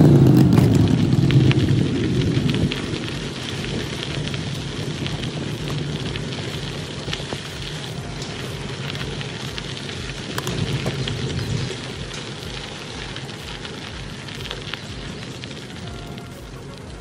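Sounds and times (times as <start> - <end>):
bicycle tyres rolling on gravel: 0.0 - 17.0.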